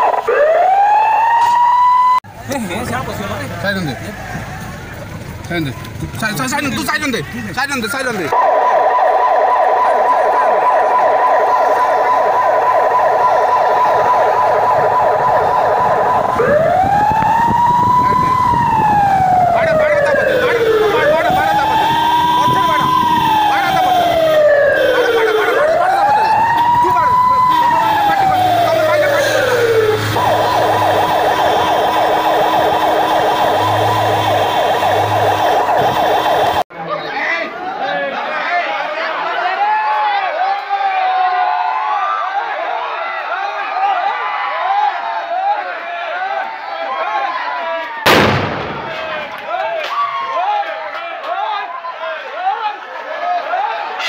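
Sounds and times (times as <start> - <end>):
vehicle siren yelping and wailing: 0.0 - 2.4, 8.3 - 36.7.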